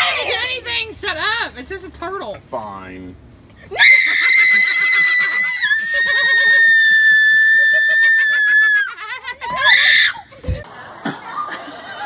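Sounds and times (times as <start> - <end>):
woman screaming: 3.7 - 10.3
laughter: 4.0 - 9.7, 10.3 - 12.0.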